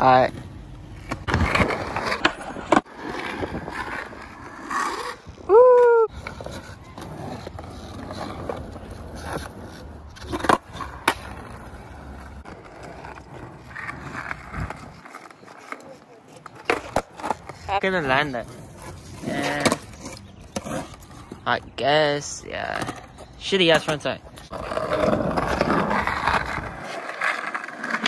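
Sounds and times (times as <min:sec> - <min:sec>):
skateboard wheels rolling on asphalt: 0:00.0 - 0:28.0
person shouting: 0:05.5 - 0:06.1.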